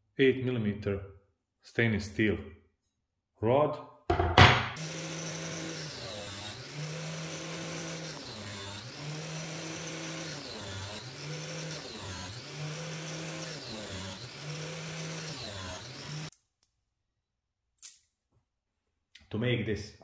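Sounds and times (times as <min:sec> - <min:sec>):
angle grinder whining: 0:04.8 - 0:16.3
grinding hiss: 0:04.8 - 0:16.3.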